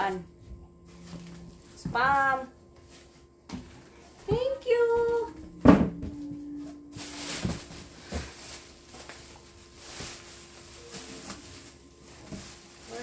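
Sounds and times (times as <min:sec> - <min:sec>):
plastic bag rustling: 0:06.4 - 0:13.0.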